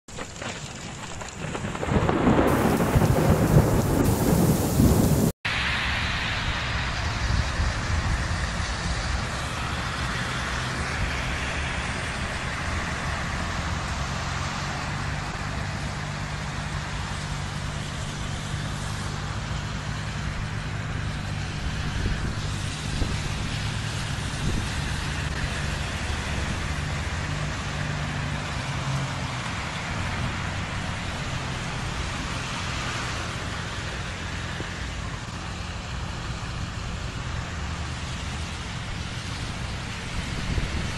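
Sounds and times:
rain falling: 0.1 - 5.4
thunder rumble: 0.1 - 9.6
hum of vehicle engines: 0.1 - 40.9.

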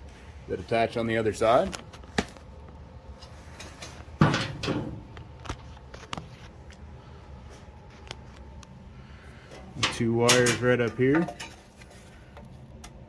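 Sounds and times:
metal parts clunking: 9.5 - 11.8.

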